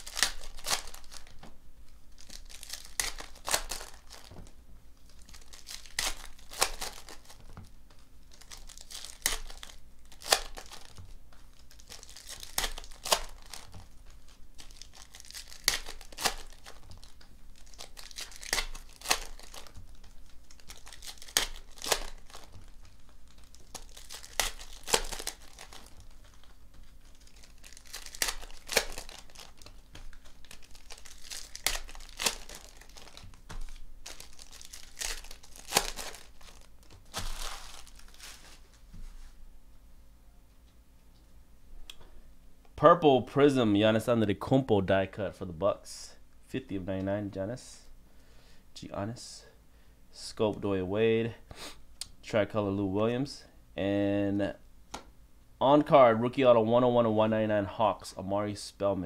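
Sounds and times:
foil packs tearing: 0.0s - 1.4s, 2.2s - 4.4s, 5.1s - 7.5s, 8.3s - 11.0s, 11.6s - 13.8s, 14.6s - 38.6s
foil wrappers crinkling: 0.0s - 1.5s, 2.1s - 38.9s.

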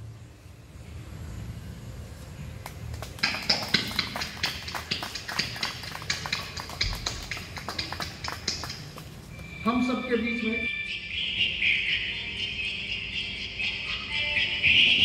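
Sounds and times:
people applauding: 2.6s - 9.4s.

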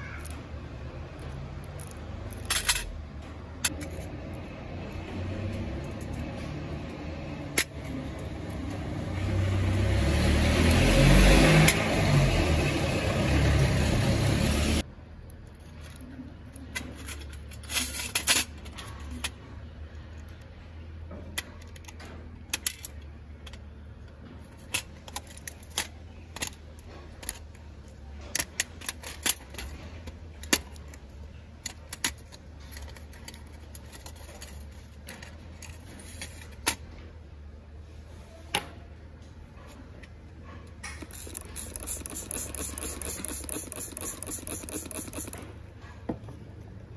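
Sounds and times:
small parts set on metal tray: 1.2s - 3.0s
screwdriver clicking on metal: 40.9s - 45.4s.

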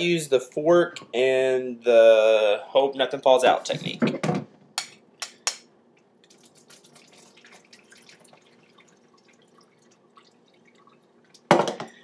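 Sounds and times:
water trickling into a sink: 6.2s - 11.5s.

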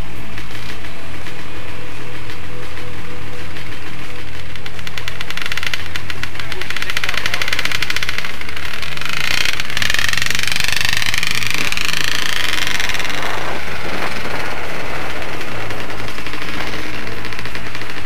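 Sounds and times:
off-road vehicle engine running: 0.0s - 18.0s
high whine rising in pitch: 6.5s - 17.9s.

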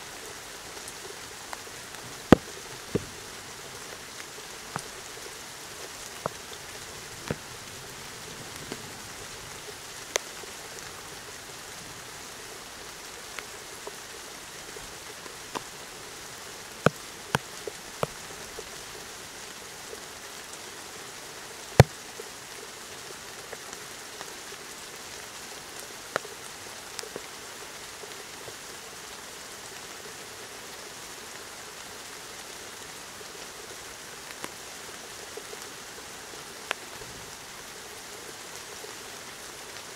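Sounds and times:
steady rain falling: 0.0s - 39.9s
sharp taps of raindrops: 0.8s - 9.0s, 15.3s - 19.1s, 21.8s - 22.3s, 26.1s - 26.4s.

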